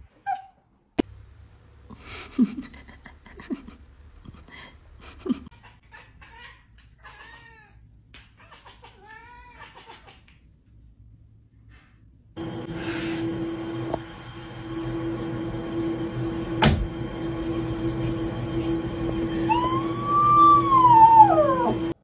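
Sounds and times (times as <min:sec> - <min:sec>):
cat chirping: 0:19.5 - 0:21.9.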